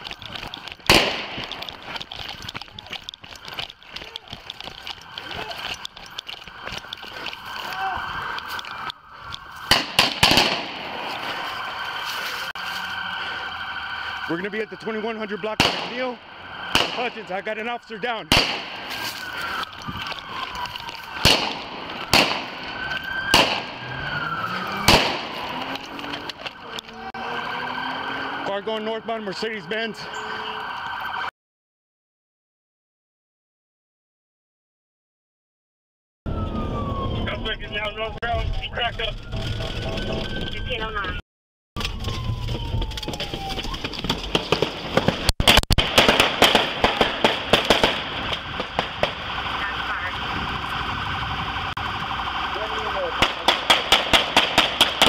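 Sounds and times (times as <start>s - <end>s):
siren wailing: 0.0s - 31.3s, 36.3s - 41.2s, 41.8s - 44.3s, 47.8s - 53.5s
gunshots: 0.8s - 1.8s, 9.6s - 11.4s, 15.4s - 17.6s, 18.3s - 19.1s, 21.1s - 26.3s, 44.3s - 49.2s, 53.2s - 55.0s.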